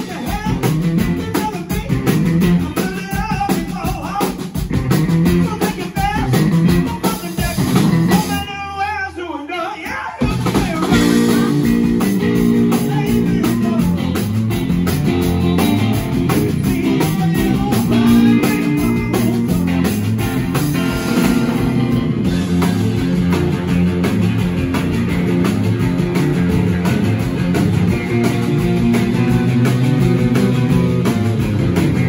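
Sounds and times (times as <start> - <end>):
blues-rock band playing: 0.0 - 8.9, 9.8 - 32.0
person singing: 5.3 - 14.3, 16.0 - 19.9
repeating guitar riff: 10.9 - 32.0.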